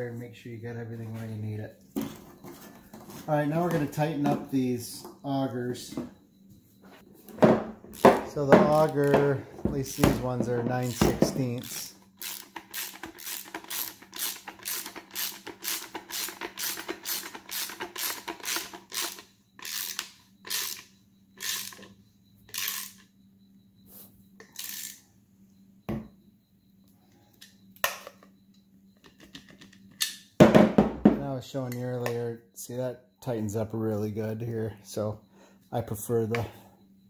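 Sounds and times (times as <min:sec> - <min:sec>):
ratchet wrench clicking: 0:11.6 - 0:21.9, 0:22.5 - 0:23.0, 0:24.5 - 0:25.0.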